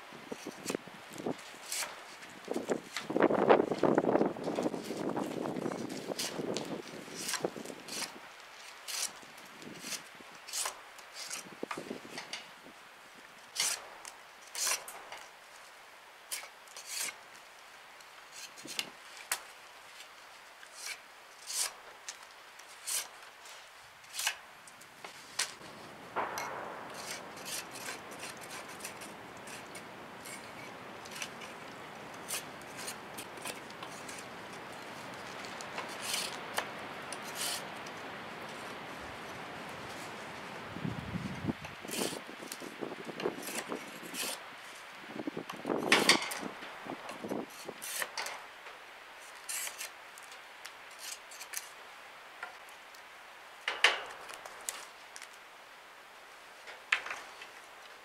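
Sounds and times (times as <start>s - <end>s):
steady hiss: 0.0s - 58.0s
knife shaving bark off stick: 1.5s - 2.2s, 5.9s - 9.2s, 9.8s - 11.5s, 13.6s - 13.8s, 16.3s - 17.2s, 20.7s - 23.1s, 26.8s - 38.0s, 49.3s - 50.0s.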